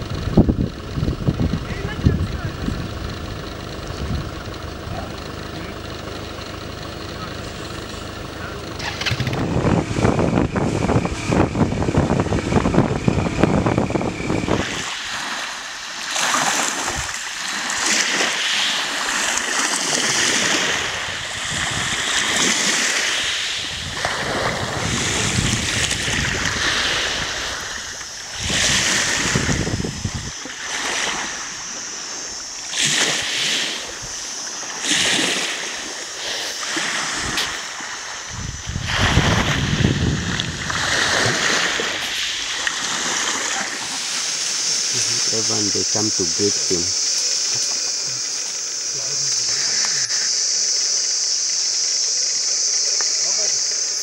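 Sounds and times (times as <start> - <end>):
loud low rumble: 0.0 - 14.8
wind hiss: 0.0 - 54.0
waves washing in: 12.2 - 50.4.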